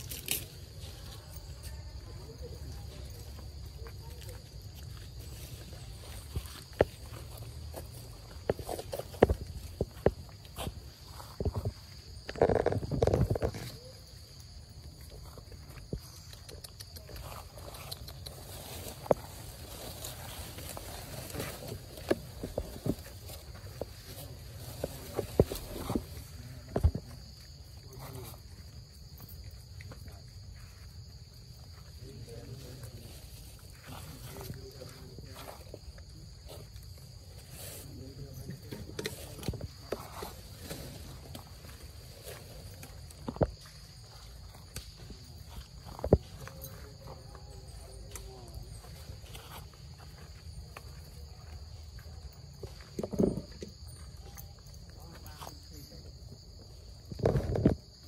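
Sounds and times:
insects droning: 0.0 - 58.0
monkeys rustling dry leaves: 17.2 - 26.4.

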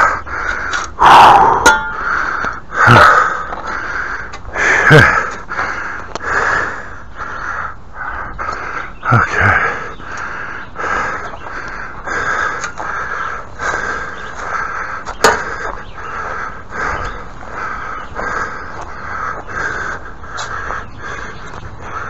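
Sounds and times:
crows cawing: 0.0 - 22.0.

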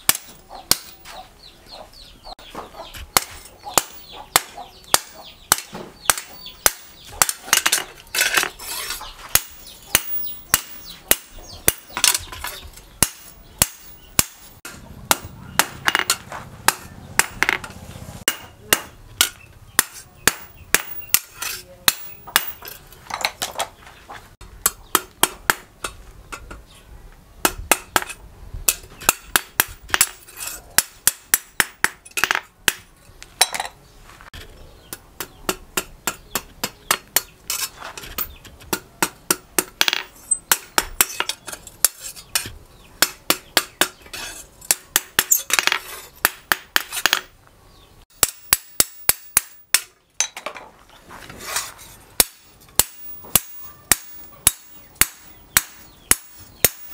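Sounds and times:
hammer striking metal blade: 18.3 - 22.7, 52.2 - 56.9.

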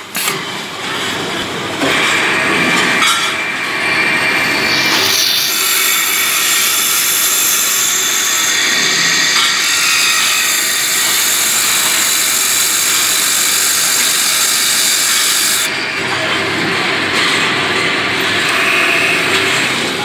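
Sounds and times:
machine running hum: 0.6 - 20.0
high-pitched drilling noise: 2.2 - 16.1, 18.2 - 19.7.

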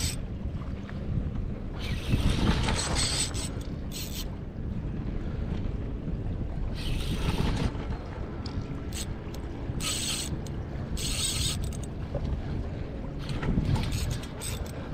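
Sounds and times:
fishing reel whirring: 0.0 - 0.2, 1.8 - 4.4, 6.7 - 7.7, 8.8 - 11.9, 13.6 - 14.9.

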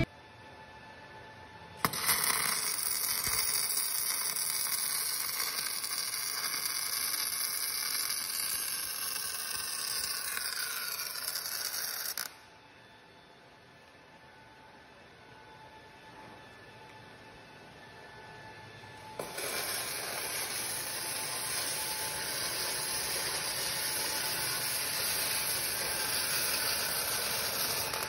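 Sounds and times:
welding arc crackling and hissing: 1.8 - 12.4, 19.2 - 28.0.

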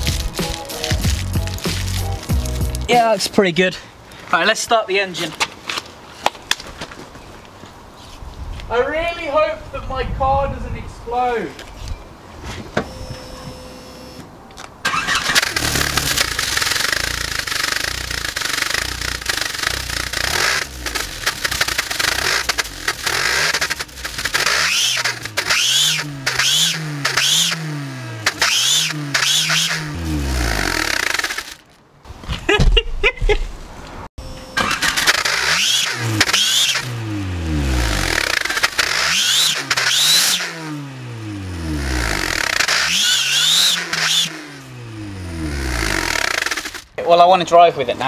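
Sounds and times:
car engine revving in blips: 14.8 - 31.6, 34.2 - 47.0
party blowers buzzing and whistling: 42.4 - 44.3.

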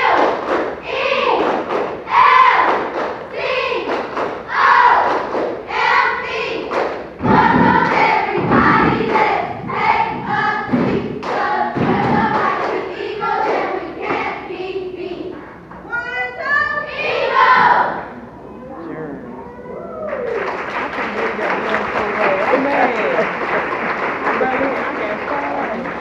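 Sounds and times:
stomping feet thumps: 7.2 - 12.6
children chanting in unison: 16.8 - 18.1.

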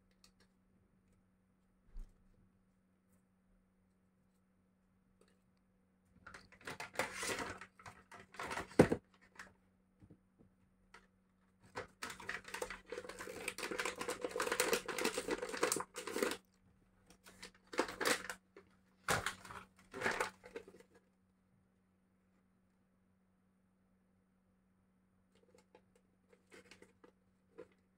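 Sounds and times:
faint steady hum: 0.0 - 27.9
plastic foil pouches crinkling: 11.9 - 16.5, 17.3 - 18.4.

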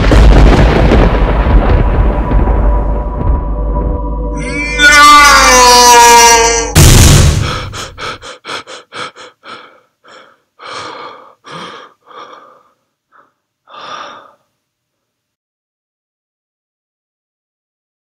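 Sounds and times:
man screaming: 4.4 - 6.8
rapid panting breaths: 7.4 - 14.4
sharp gasp: 7.4 - 14.5.

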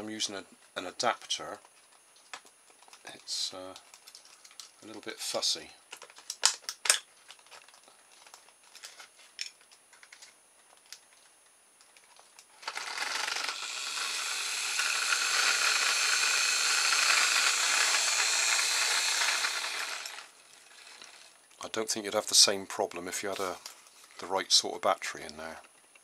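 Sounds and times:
electric motor whirring: 12.6 - 21.4.

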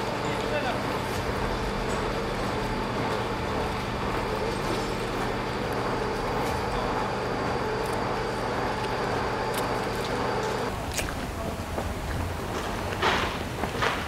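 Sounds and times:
machine engine droning: 0.0 - 10.8
street background noise: 0.0 - 14.0.

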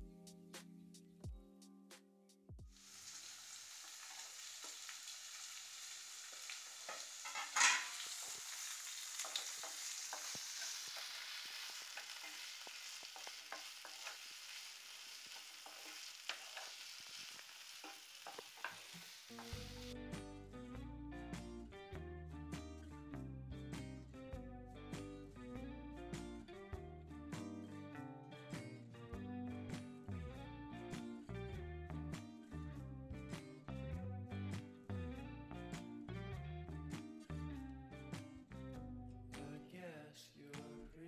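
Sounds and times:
vegetables sizzling in a pan: 2.7 - 20.0
wooden spatula scraping a pan: 6.8 - 14.6, 15.3 - 19.9
guitar music: 19.3 - 39.7.

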